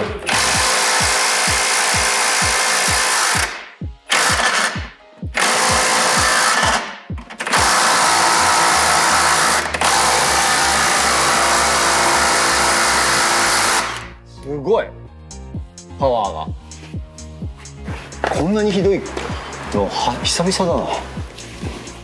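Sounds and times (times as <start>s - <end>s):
handheld power tool running: 0.0s - 14.1s
thumping music beat: 0.0s - 14.3s, 15.1s - 22.0s.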